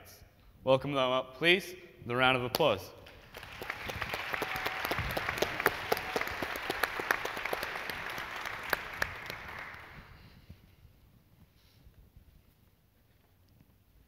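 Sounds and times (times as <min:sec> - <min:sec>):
audience applauding: 0:03.0 - 0:10.3.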